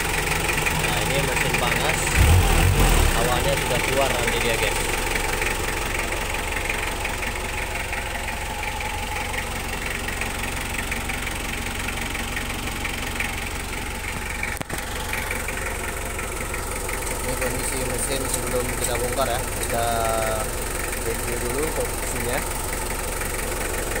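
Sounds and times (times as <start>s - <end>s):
diesel engine idling: 0.0s - 24.0s
man talking: 0.8s - 4.9s, 17.2s - 22.5s.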